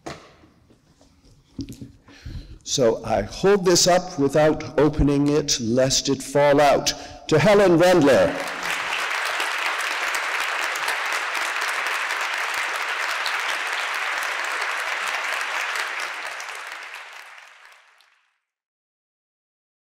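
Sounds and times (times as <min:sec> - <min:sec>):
audience applauding: 0:08.0 - 0:18.3.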